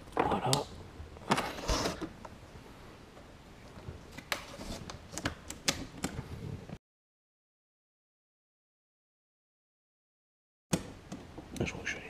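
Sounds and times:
clicks and knocks of plastic parts: 3.8s - 6.4s.

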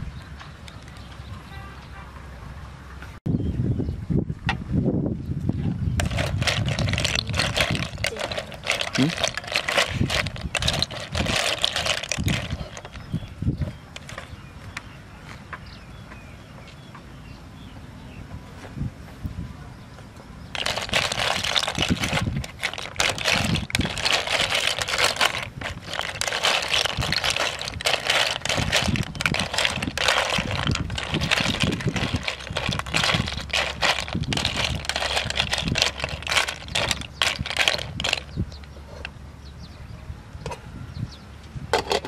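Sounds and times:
shells clattering in metal pot: 6.0s - 13.1s, 20.5s - 38.3s.

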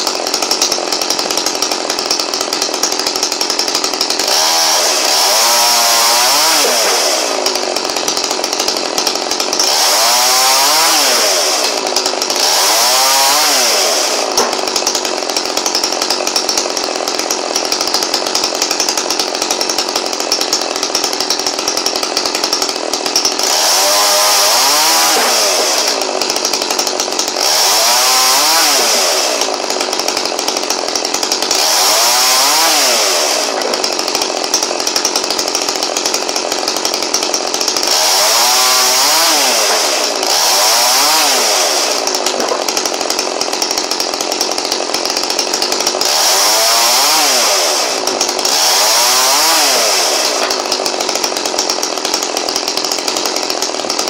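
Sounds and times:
chainsaw revving: 0.0s - 54.0s.

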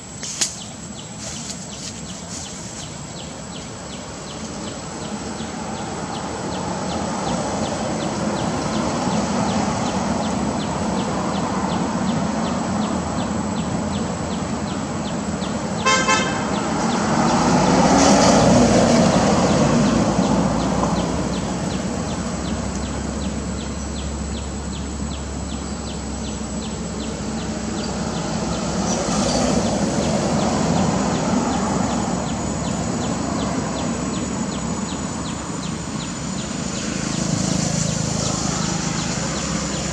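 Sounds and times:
traffic noise: 0.0s - 39.9s
vehicle passing with low rumble: 3.1s - 39.9s
vehicle horn toot: 15.8s - 16.6s.

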